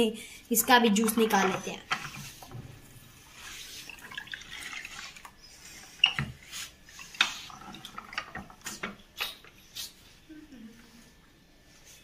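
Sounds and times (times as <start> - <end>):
juice trickling into cup: 3.2 - 9.4.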